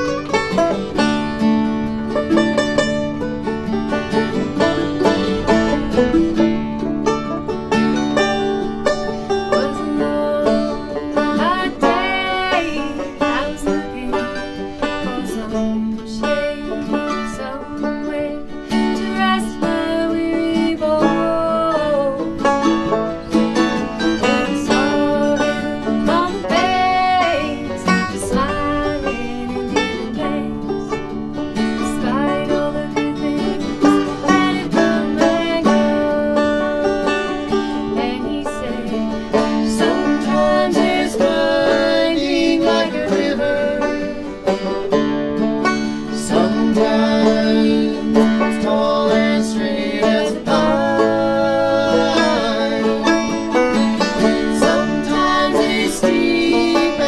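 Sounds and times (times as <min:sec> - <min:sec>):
acoustic guitar: 0:00.0 - 0:57.0
banjo: 0:00.0 - 0:57.0
mandolin: 0:00.0 - 0:57.0
woman singing: 0:09.5 - 0:22.4, 0:24.1 - 0:31.0, 0:31.6 - 0:44.3, 0:46.1 - 0:53.4, 0:54.4 - 0:57.0.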